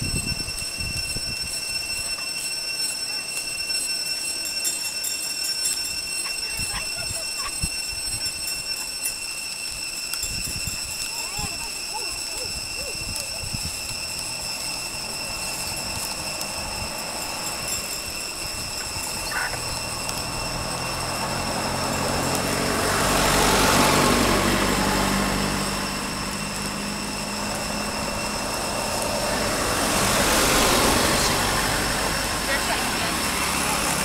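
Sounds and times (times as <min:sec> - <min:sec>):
another engine: 0:13.5 - 0:34.0
vehicle engine passing: 0:19.4 - 0:34.0.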